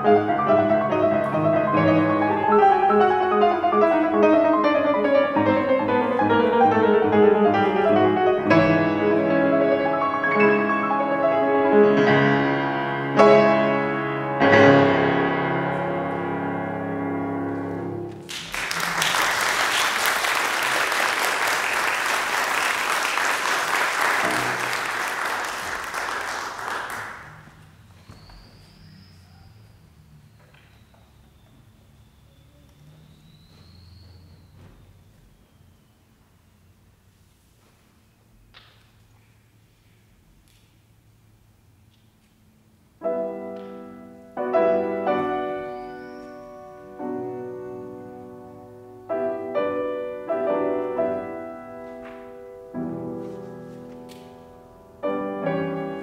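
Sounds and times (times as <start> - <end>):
grand piano classical piece: 0.0 - 35.9, 41.0 - 56.0
audience applauding: 18.2 - 27.6.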